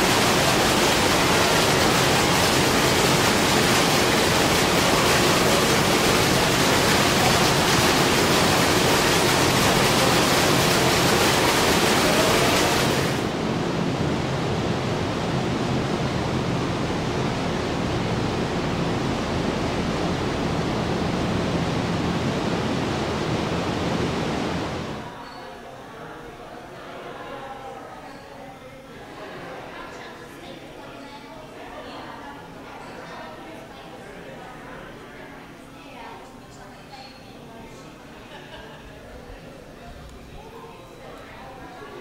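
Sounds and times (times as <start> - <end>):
grain mash pouring and splashing: 0.0 - 13.3
steady room noise: 0.0 - 42.0.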